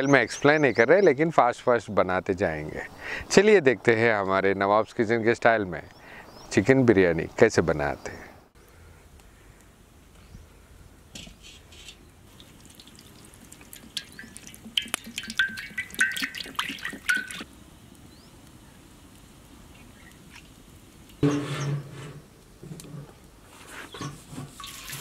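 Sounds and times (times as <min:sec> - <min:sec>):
oil pouring and splashing: 0:12.2 - 0:17.5, 0:24.3 - 0:25.0.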